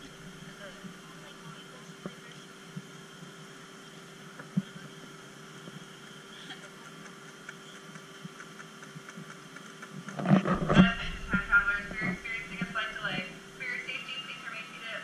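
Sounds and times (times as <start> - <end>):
steady mechanical hum: 0.0 - 15.0
faint clicks: 6.8 - 10.6.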